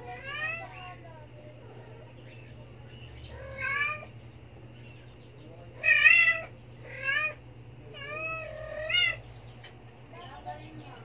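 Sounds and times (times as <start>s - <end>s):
kittens mewing: 0.0s - 2.2s, 3.2s - 4.2s, 5.7s - 9.3s.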